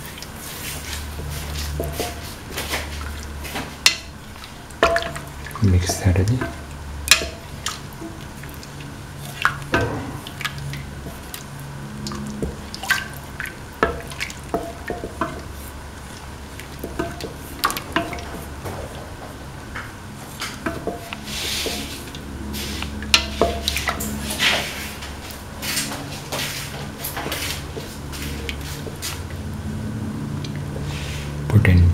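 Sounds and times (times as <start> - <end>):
ladle clinking and scraping a pan: 0.0 - 8.2, 20.2 - 29.1
liquid sloshing: 0.0 - 31.4
low steady hum: 0.0 - 31.9.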